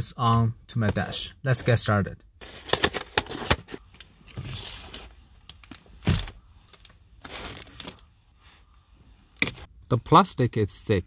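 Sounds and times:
packaging rustling and crinkling: 2.4 - 8.0.

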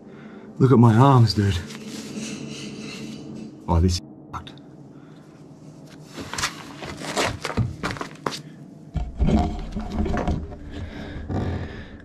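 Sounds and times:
chain clanking and scraping: 1.8 - 3.6.

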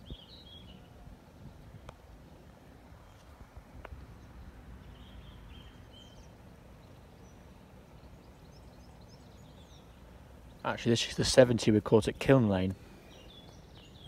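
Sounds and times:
steady low rumble: 0.0 - 13.7
faint bird chirps: 12.8 - 14.0.

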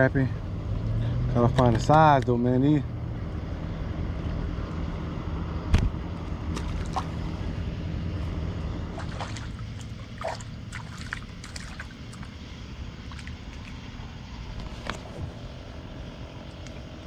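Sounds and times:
low steady hum: 0.0 - 17.0
water sloshing and trickling: 6.2 - 15.4.

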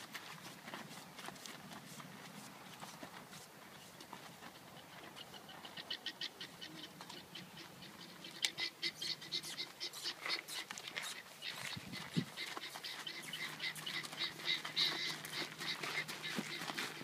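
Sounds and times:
footsteps crunching on gravel: 0.0 - 5.2, 10.2 - 17.0
hooves on gravel: 0.0 - 5.8, 9.6 - 17.0.

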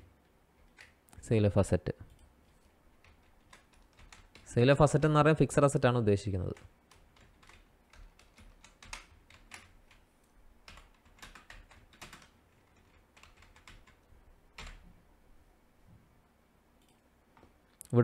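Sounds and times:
typing on computer keyboard: 0.6 - 1.0, 2.1 - 4.5, 6.5 - 10.0, 10.6 - 14.8.

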